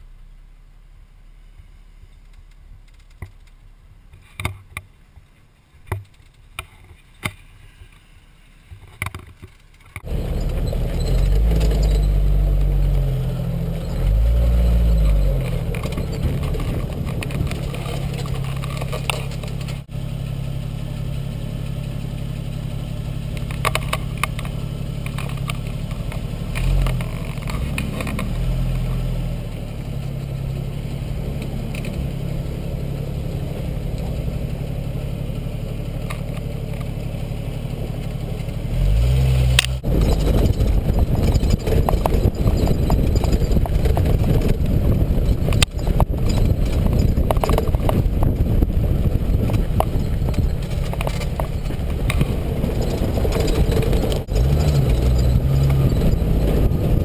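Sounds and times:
sharp clicks and knocks: 2.2 - 4.9, 5.8 - 8.0, 8.7 - 13.1, 14.9 - 19.9, 23.3 - 28.4, 31.4 - 32.0, 39.5 - 48.7, 49.3 - 57.0
rattles: 5.9 - 8.0, 8.8 - 19.9, 23.3 - 29.0, 35.7 - 57.0
off-road vehicle engine running: 5.9 - 57.0.

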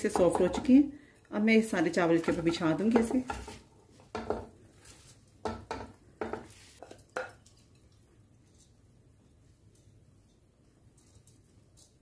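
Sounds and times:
wooden spoon knocking on bowl: 2.2 - 4.5, 5.4 - 6.5.

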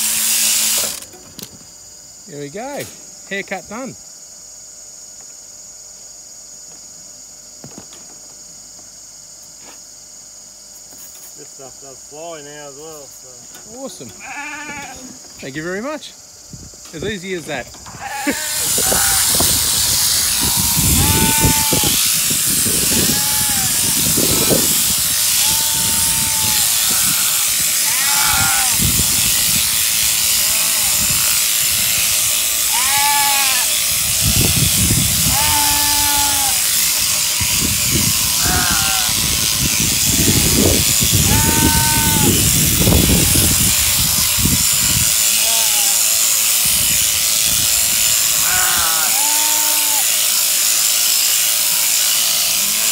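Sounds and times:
electric shears whirring: 0.0 - 1.5, 17.2 - 52.9
sheep bleating: 14.2 - 15.1, 17.9 - 28.8, 32.6 - 33.8, 35.2 - 36.7, 38.2 - 39.3, 41.1 - 42.4, 45.3 - 46.4, 48.3 - 50.2.

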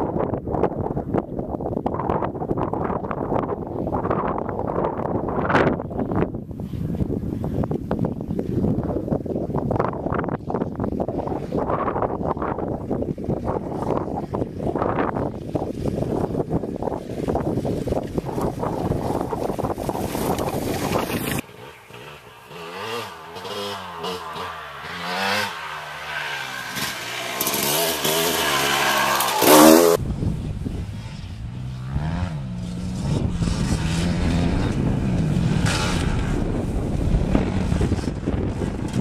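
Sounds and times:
wind noise: 0.0 - 39.0
dirt bike engine revving: 20.3 - 30.0, 30.9 - 39.0.

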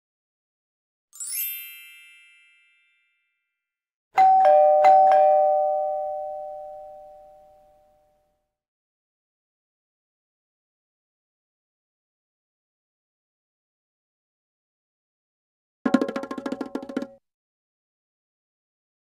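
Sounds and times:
rising shimmer of bell tones: 1.2 - 3.2
two-tone doorbell chime: 1.3 - 3.5, 4.2 - 8.3.

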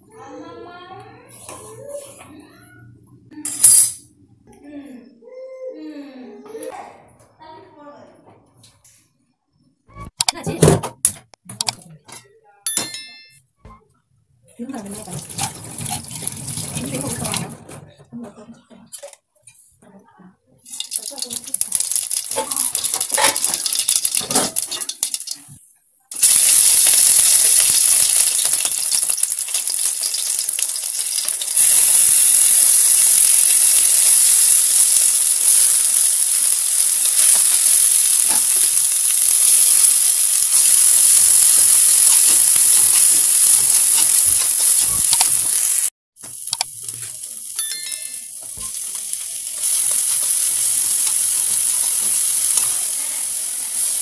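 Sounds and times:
hot oil sizzling in a pan: 14.8 - 17.5, 20.6 - 54.0
spatula stirring: 14.8 - 17.5, 20.7 - 25.6.

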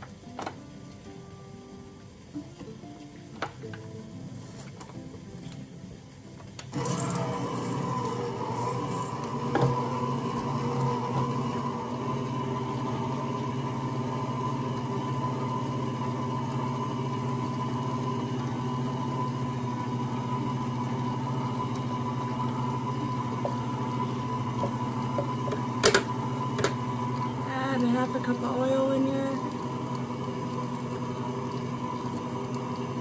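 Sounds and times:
electric stand mixer humming: 5.9 - 33.0.

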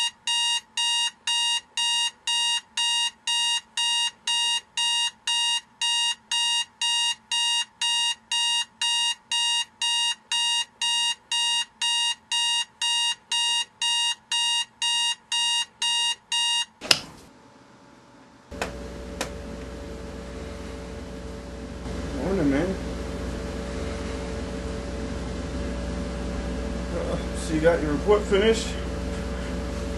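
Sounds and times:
alarm clock beeping: 0.0 - 16.8.

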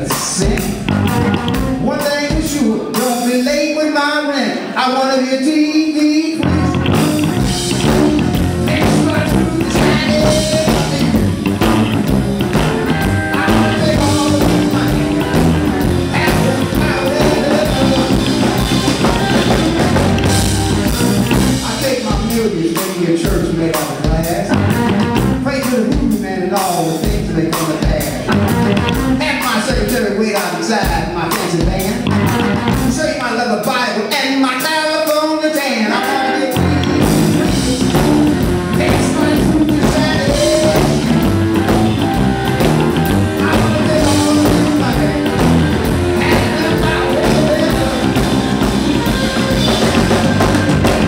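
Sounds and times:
electric guitar: 0.0 - 1.9, 6.4 - 22.3, 31.9 - 33.0, 35.8 - 51.0
electric blues band playing: 0.0 - 4.0, 6.3 - 51.0
low bass: 0.7 - 1.9, 6.4 - 22.2, 24.5 - 25.6, 28.2 - 29.3, 32.0 - 33.0, 36.5 - 51.0.

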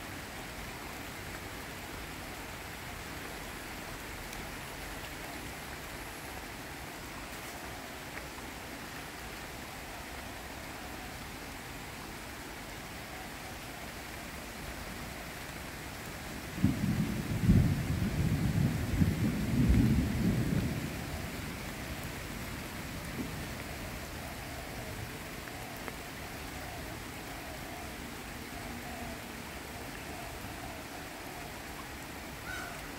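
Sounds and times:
rain on foliage: 0.0 - 32.9
thunder rumble: 16.6 - 21.7.

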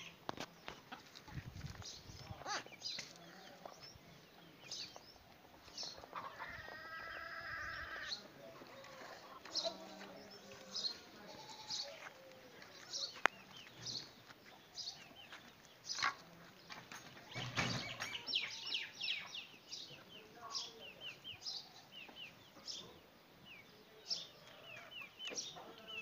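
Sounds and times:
goat bleating: 11.3 - 11.9.

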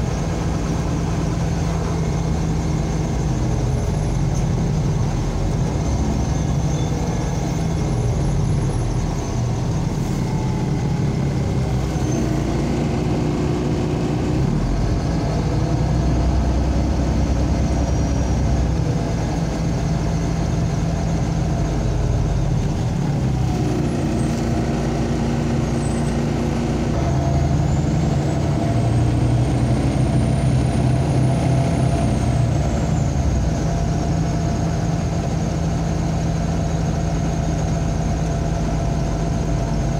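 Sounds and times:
bus engine and road noise: 0.0 - 39.9.

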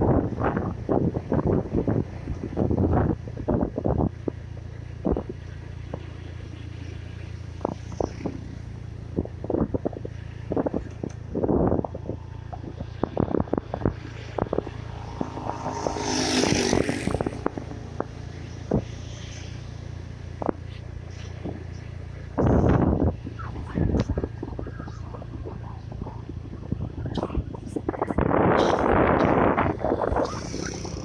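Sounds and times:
vehicle engine drone: 0.0 - 31.0
rush of noise: 9.6 - 31.0.

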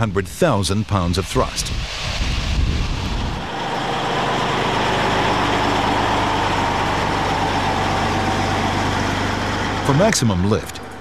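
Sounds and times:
brief rushing noise: 1.0 - 7.8
truck engine humming: 2.5 - 11.0.

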